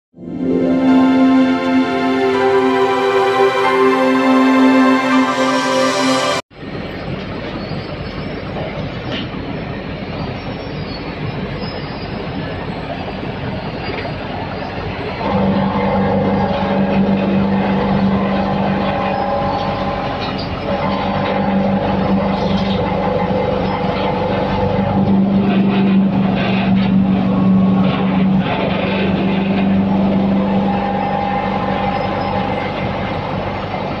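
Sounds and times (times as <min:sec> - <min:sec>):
strong low hum: 0:15.2 - 0:34.0
wood chipper running: 0:15.2 - 0:34.0.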